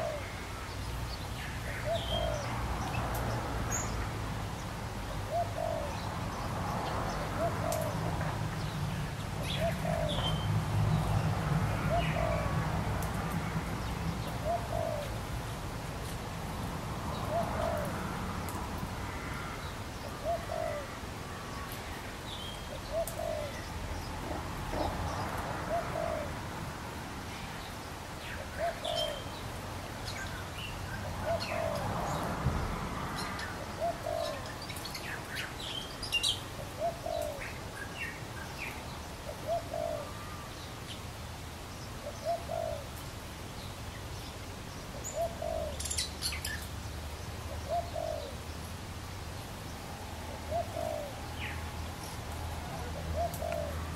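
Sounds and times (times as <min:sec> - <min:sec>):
low bird cooing: 0:00.0 - 0:00.8, 0:01.6 - 0:02.6, 0:05.1 - 0:06.1, 0:07.1 - 0:08.2, 0:09.4 - 0:10.5, 0:11.7 - 0:12.6, 0:14.2 - 0:15.3, 0:17.1 - 0:18.1, 0:19.1 - 0:21.4, 0:22.7 - 0:25.0, 0:25.6 - 0:26.4, 0:28.4 - 0:29.4, 0:31.0 - 0:31.9, 0:33.2 - 0:35.1, 0:36.6 - 0:38.1, 0:39.3 - 0:40.6, 0:42.0 - 0:43.0, 0:45.0 - 0:46.6, 0:47.5 - 0:48.5, 0:49.9 - 0:53.9.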